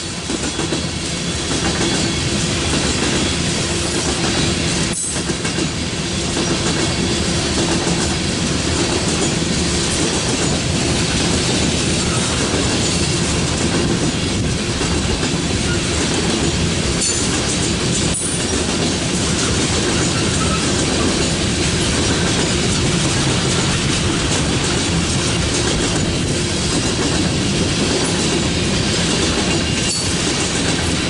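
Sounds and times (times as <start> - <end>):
train wheels clattering over rail joints: 0.0 - 31.0
steady squeal-like tone: 11.9 - 13.2, 15.6 - 16.1, 19.3 - 21.2.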